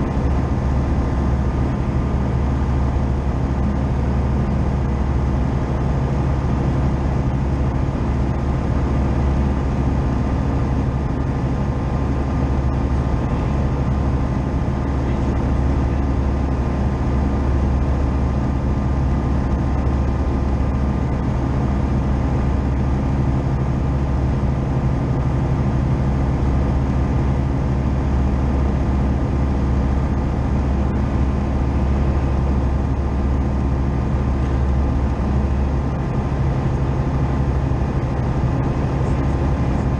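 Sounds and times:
light aircraft engine droning: 0.0s - 39.9s.

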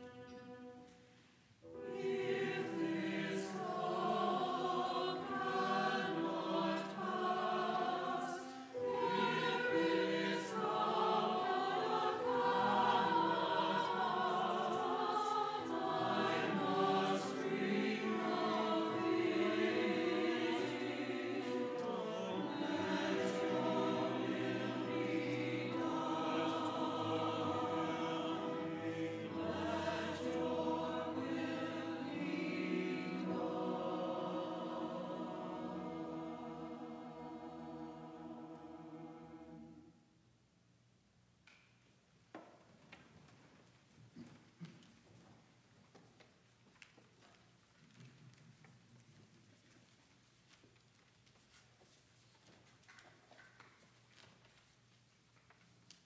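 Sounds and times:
church choir singing: 0.0s - 40.2s.

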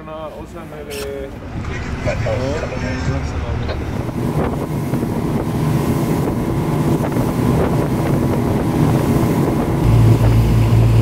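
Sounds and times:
motorboat engine drone: 1.4s - 11.0s
wind buffeting microphone: 1.4s - 11.0s
water rushing past hull: 3.2s - 11.0s.

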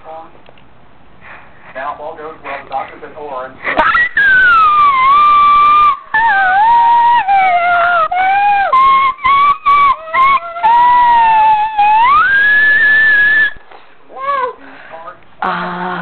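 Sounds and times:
child howling: 3.8s - 13.6s, 14.2s - 14.6s.

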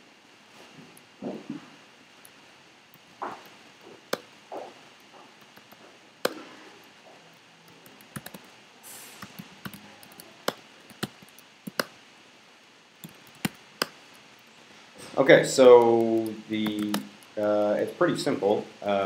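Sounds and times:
typing on keyboard: 7.8s - 8.5s, 9.2s - 11.9s, 13.0s - 14.0s, 15.8s - 17.2s.

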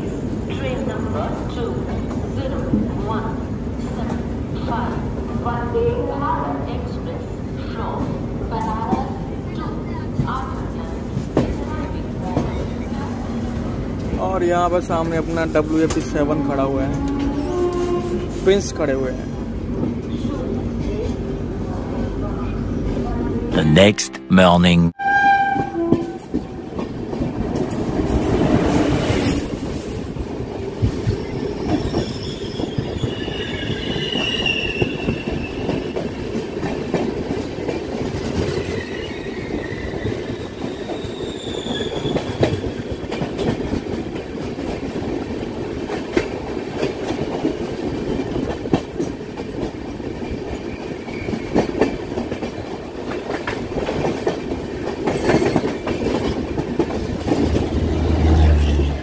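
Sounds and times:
train wheels rumbling on rails: 25.6s - 59.0s.

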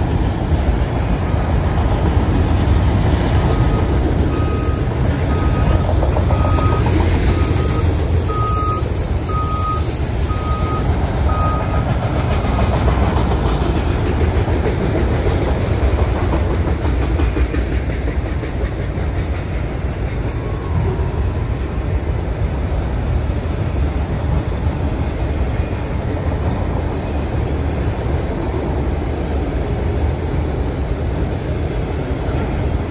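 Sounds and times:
train wheels rumbling on rail: 0.0s - 32.9s
short beeps: 3.5s - 11.8s.

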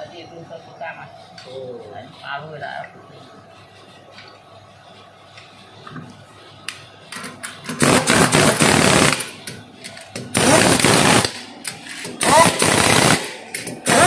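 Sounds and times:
impact wrench hammering lug nuts: 10.2s - 11.4s, 12.0s - 14.0s.

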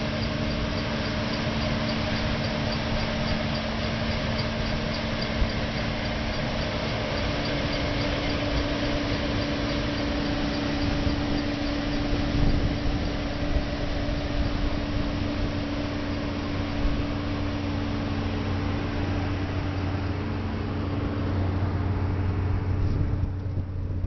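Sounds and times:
harvester engine hum: 0.0s - 24.0s.

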